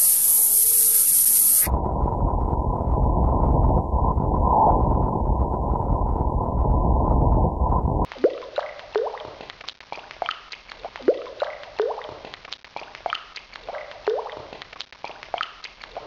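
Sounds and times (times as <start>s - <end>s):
water drops plinking into water: 8.1s - 12.2s, 12.8s - 16.0s.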